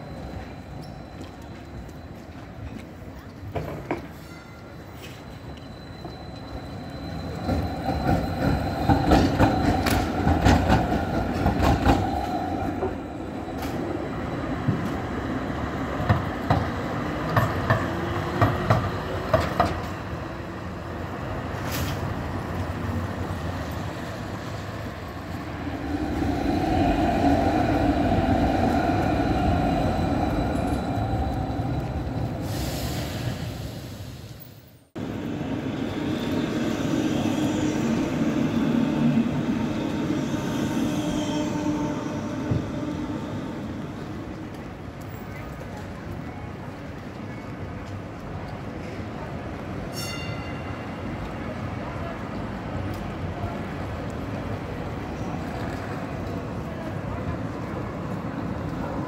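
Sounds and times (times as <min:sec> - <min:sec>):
tram rolling hum: 0:00.0 - 0:59.0
tram wheels clacking over rail joints: 0:06.9 - 0:14.0, 0:15.8 - 0:20.1.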